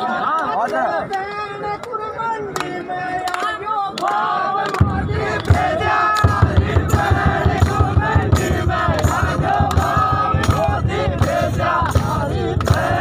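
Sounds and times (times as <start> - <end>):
crowd singing and shouting: 0.0 - 13.0
thumping beat: 4.8 - 13.0.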